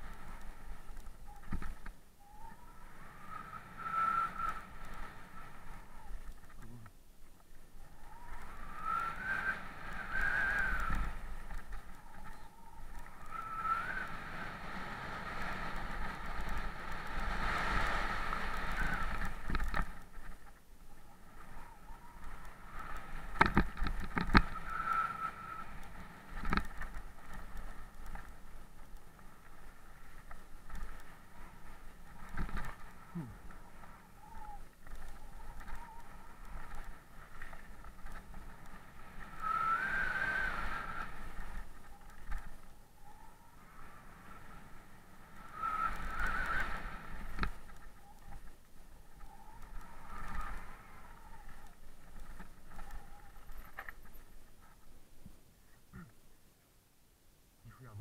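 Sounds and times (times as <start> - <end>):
bike tyres on gravel: 0.0 - 56.0
wind rumbling on microphone: 0.0 - 56.1
bike tyres crunching on gravel: 22.3 - 39.7.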